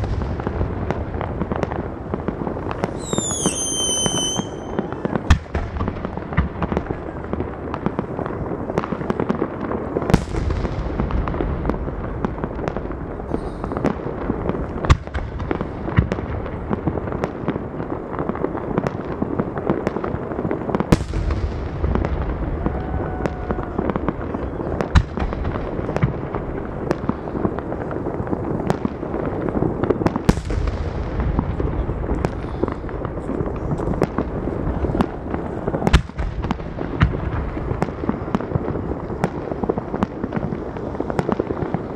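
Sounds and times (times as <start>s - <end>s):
firework hiss: 0.0s - 7.8s
fireworks crackling and popping: 0.0s - 41.9s
firework shells bursting: 2.7s - 5.8s.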